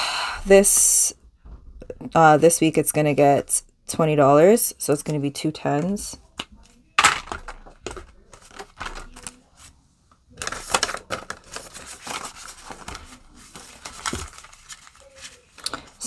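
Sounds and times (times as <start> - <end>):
banknotes clicking and crinkling: 5.0 - 9.7, 10.3 - 16.0
thick rustle of bills: 10.6 - 16.0.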